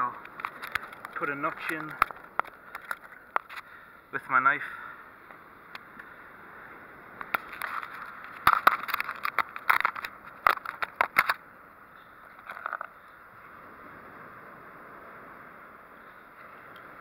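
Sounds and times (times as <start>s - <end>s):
multi-tool clicks and scrapes: 0.2s - 3.7s, 7.2s - 11.4s, 12.4s - 13.0s.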